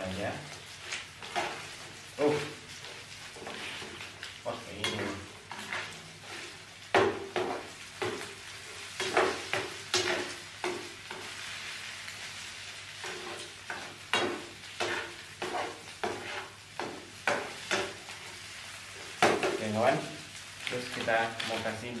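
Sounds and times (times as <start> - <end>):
rice sizzling in oil: 0.0 - 22.0
metal spatula scraping pan: 1.2 - 1.8, 3.4 - 4.1, 4.8 - 8.2, 13.0 - 18.0.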